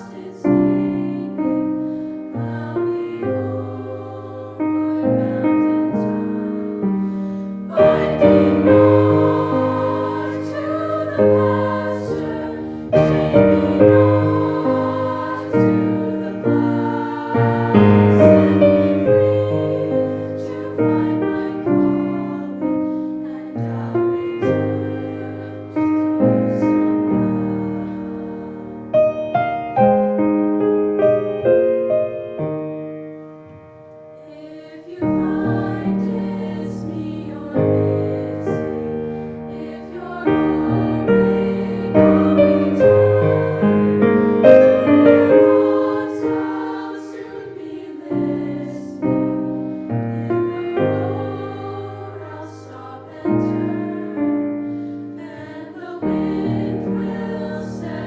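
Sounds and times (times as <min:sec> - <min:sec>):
youth choir singing: 0:00.0 - 0:29.1, 0:34.2 - 0:58.0
piano accompaniment: 0:00.0 - 0:58.0.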